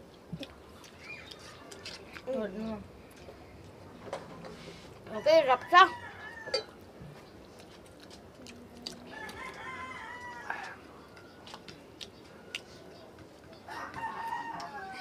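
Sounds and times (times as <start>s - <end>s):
rooster crowing: 5.2s - 6.8s, 9.1s - 11.5s, 13.7s - 15.0s.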